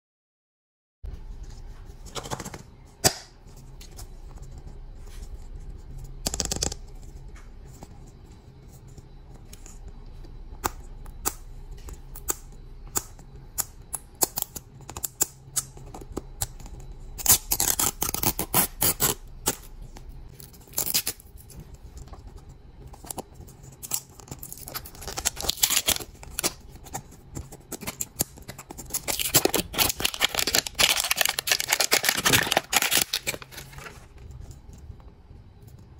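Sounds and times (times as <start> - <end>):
plastic wrap crinkling: 23.0 - 34.4.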